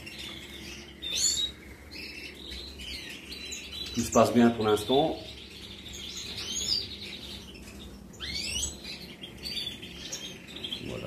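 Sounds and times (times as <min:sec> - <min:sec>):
goldfinches chirping: 0:00.0 - 0:11.0.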